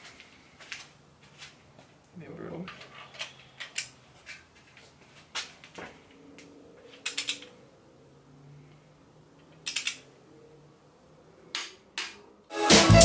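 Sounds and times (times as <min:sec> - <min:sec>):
torque wrench clicking: 0:09.6 - 0:10.0.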